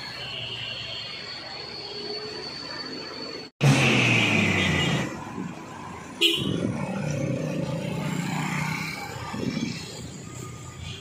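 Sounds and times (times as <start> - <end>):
vehicle horn honking: 6.2 - 6.6.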